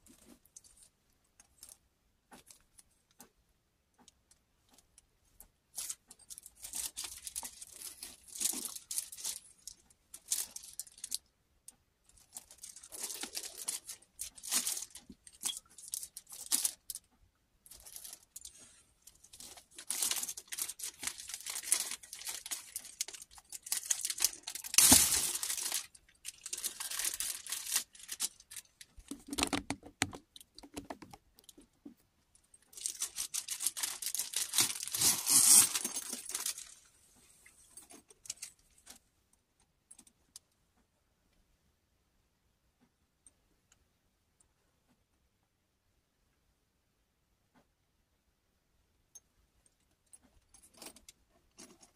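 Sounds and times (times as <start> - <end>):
plastic bag crinkling and tearing: 6.4 - 11.2, 12.3 - 17.0, 19.2 - 31.1, 32.8 - 36.8.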